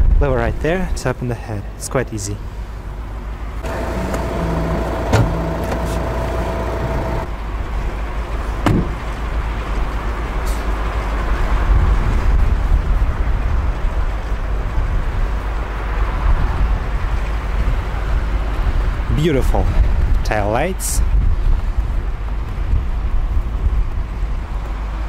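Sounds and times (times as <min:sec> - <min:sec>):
car door thudding shut: 0:03.6 - 0:07.2, 0:08.6 - 0:09.0
diesel engine idling: 0:03.6 - 0:07.3.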